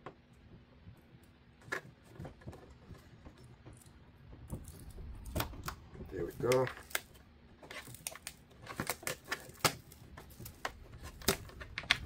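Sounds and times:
plastic clicks and snaps: 7.8 - 12.0.

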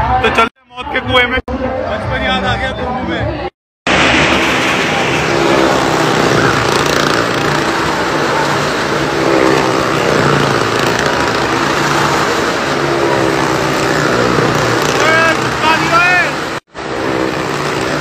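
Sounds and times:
car and motorcycle engines revving: 4.0 - 18.0.

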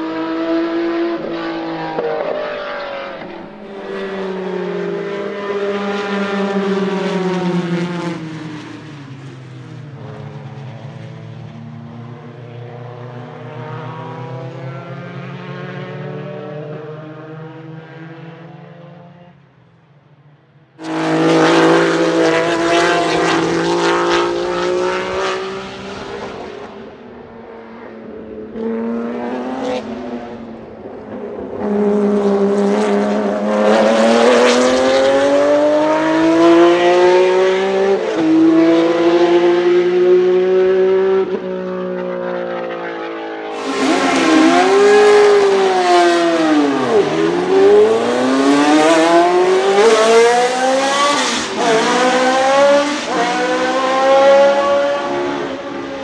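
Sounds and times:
racing cars passing at speed: 0.0 - 19.6, 20.2 - 56.0
racing car engine revving: 20.8 - 26.8, 43.5 - 56.0.

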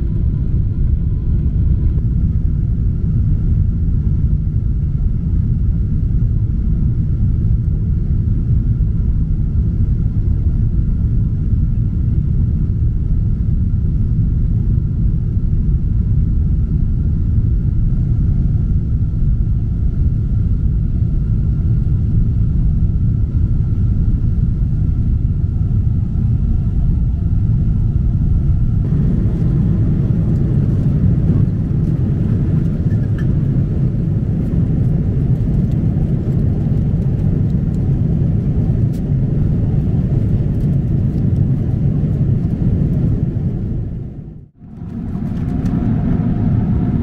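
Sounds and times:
jet engines rumbling: 0.0 - 47.0
rushing air: 28.8 - 33.1.

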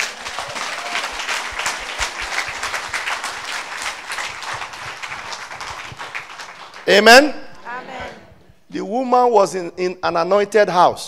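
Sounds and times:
congregation applauding: 0.0 - 7.7.

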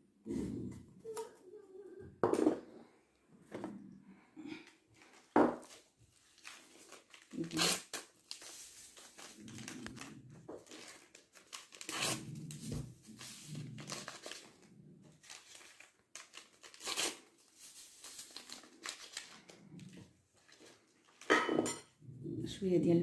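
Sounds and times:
paper sachets tearing and crinkling: 5.1 - 21.3.

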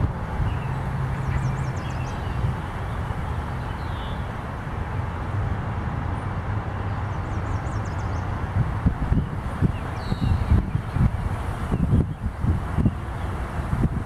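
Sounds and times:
wind rumbling on microphone: 0.0 - 14.0
small bird chirping: 9.6 - 11.0.

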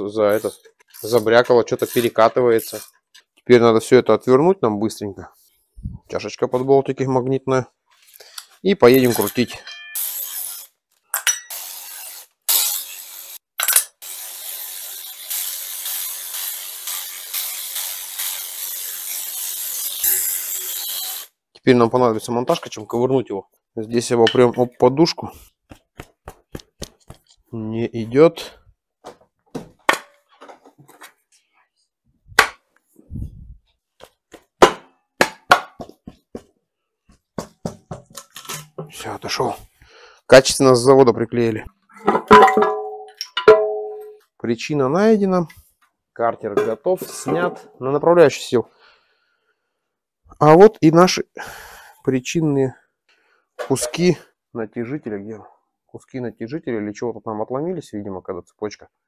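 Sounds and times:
metal clink: 9.2 - 10.2, 11.1 - 11.6, 42.3 - 44.2
pry bar knocking on metal: 42.3 - 44.1.

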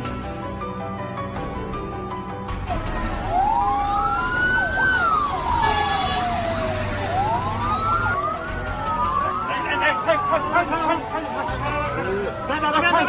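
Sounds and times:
emergency siren wailing: 2.6 - 13.0.

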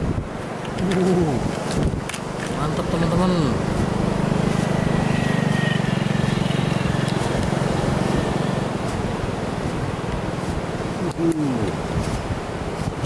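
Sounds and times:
engine running with fast pulse: 2.2 - 10.6.

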